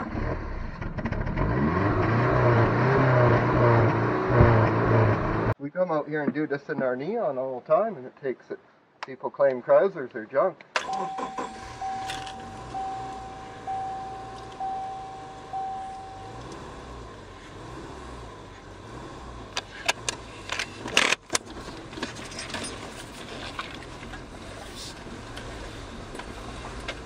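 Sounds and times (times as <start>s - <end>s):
car warning chime dinging: 10.8s - 17.1s
car engine running low: 10.9s - 27.0s.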